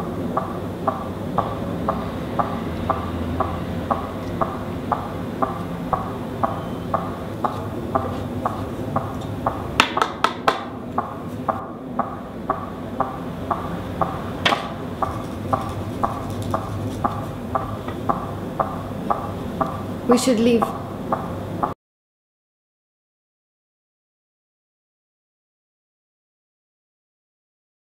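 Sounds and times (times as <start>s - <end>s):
low hum: 0.0s - 21.8s
steady regular ticking: 0.0s - 21.8s.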